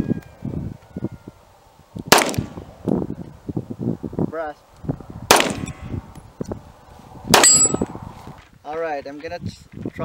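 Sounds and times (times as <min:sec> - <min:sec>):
pistol shots with short echo: 0:02.1 - 0:02.5, 0:05.3 - 0:05.7, 0:07.3 - 0:07.8.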